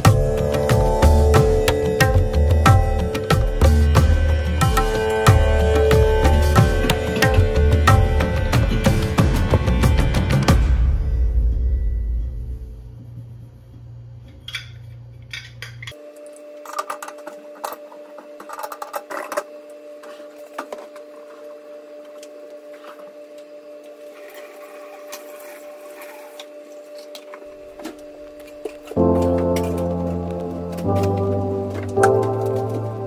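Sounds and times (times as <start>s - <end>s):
steady hum: 0.0s - 33.0s
metal burner caps clinking: 14.5s - 16.0s.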